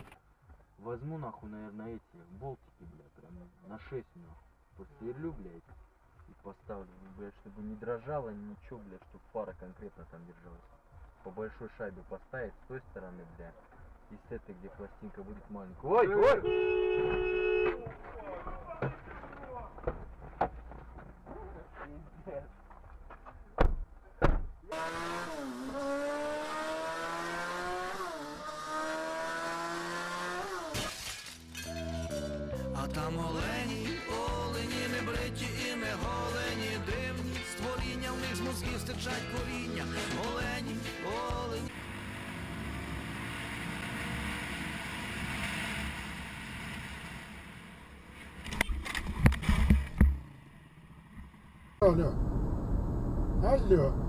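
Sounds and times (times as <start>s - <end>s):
motorcycle engine accelerating: 24.7s - 30.8s
motorcycle engine: 24.7s - 31.2s, 41.7s - 53.3s
motorcycle crash: 30.6s - 32.0s.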